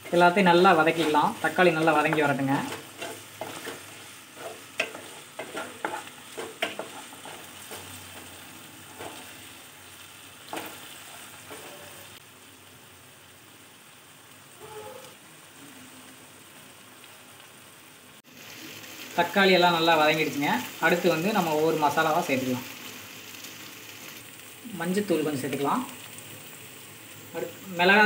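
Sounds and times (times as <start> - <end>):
spatula stirring and scraping: 0.0 - 9.7, 10.4 - 12.2
vegetables sizzling in oil: 0.0 - 28.0.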